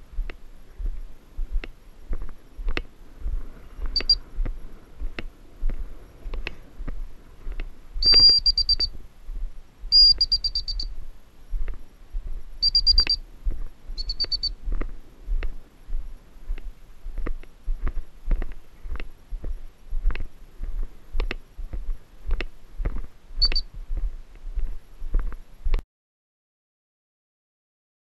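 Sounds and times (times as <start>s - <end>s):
footsteps in snow: 0.0s - 25.8s
high-pitched electronic beeping: 3.9s - 4.2s, 8.0s - 9.0s, 9.9s - 11.0s, 12.6s - 13.2s, 14.0s - 14.6s, 23.4s - 23.7s.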